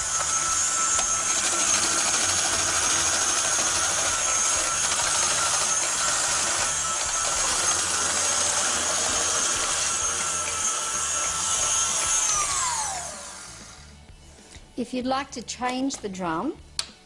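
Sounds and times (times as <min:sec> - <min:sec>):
mixer motor whine: 0:00.0 - 0:14.1.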